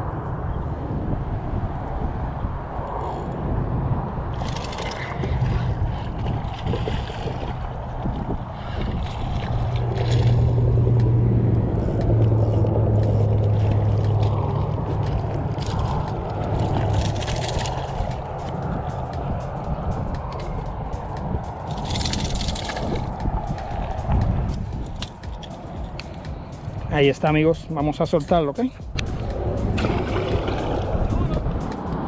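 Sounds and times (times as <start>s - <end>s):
fish splashing at water surface: 13.2s - 18.9s.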